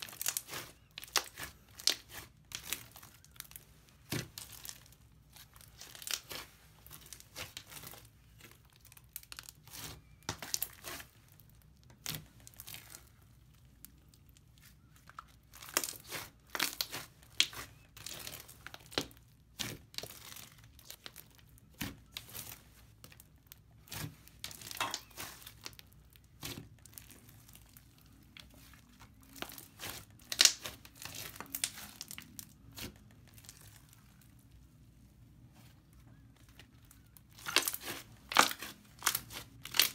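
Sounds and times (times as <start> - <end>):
sticky slime crackling and popping: 0.0 - 34.5, 36.1 - 39.9.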